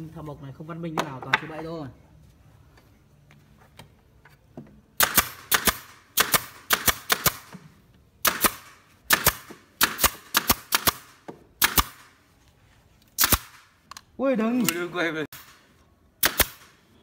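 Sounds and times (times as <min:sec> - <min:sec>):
nail gun firing: 0:05.0 - 0:07.6, 0:08.2 - 0:12.1, 0:13.2 - 0:13.7, 0:14.6 - 0:15.6, 0:16.2 - 0:16.8.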